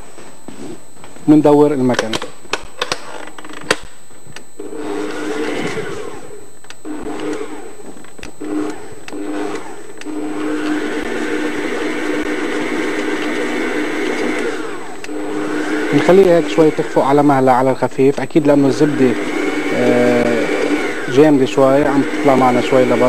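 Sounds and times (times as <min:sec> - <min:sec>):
stand mixer motor hum: 0:04.6 - 0:23.0
click: 0:06.6 - 0:07.4.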